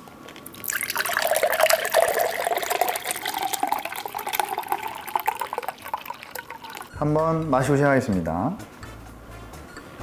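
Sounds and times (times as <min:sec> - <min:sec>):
fizzy drink pouring into glass: 0:00.4 - 0:06.9.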